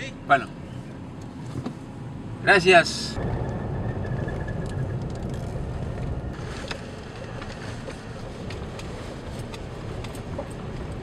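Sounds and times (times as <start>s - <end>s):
car tyres and engine rumble: 0.0s - 11.0s.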